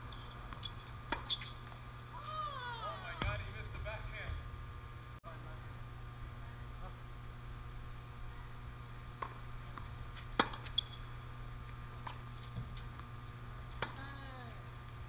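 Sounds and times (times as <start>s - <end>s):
low hum: 0.0s - 15.0s
tennis ball hits: 0.6s - 1.5s, 9.2s - 10.8s, 13.7s - 14.0s.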